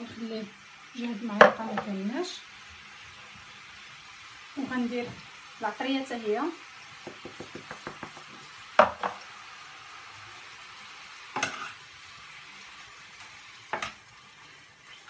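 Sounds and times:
food sizzling in a pan: 0.0s - 15.0s
utensil knocking against pan: 7.0s - 9.2s.

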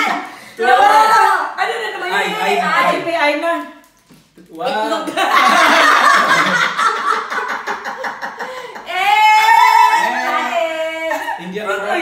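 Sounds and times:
adults laughing loudly: 5.1s - 12.0s.

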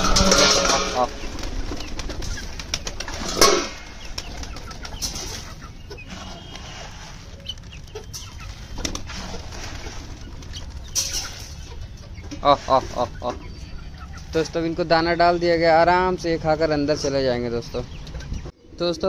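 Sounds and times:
pigeons pecking on ground: 0.0s - 14.6s
pigeons flapping wings: 1.1s - 5.5s.

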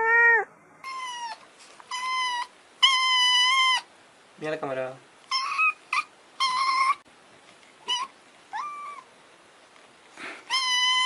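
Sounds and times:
kitten meowing: 0.0s - 3.8s, 7.8s - 9.1s, 10.5s - 11.0s.

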